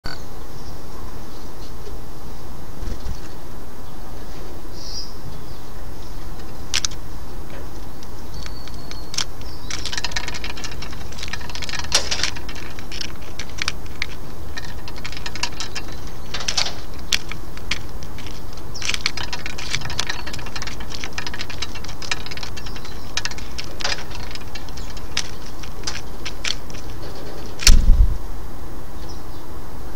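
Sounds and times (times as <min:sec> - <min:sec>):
steady hiss: 0:00.2 - 0:29.9
bird pecking on foil tray: 0:06.4 - 0:27.9.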